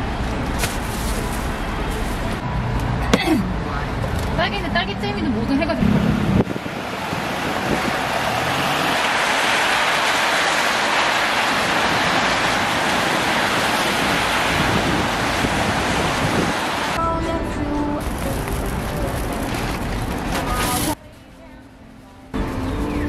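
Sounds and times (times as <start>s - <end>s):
traffic hiss on wet roads: 6.5s - 17.0s.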